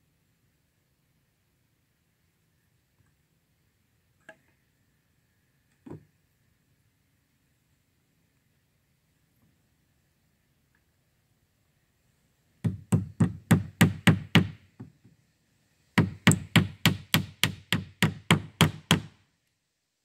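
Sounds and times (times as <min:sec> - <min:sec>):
hammer striking wood: 0:12.6 - 0:15.0, 0:16.0 - 0:19.2.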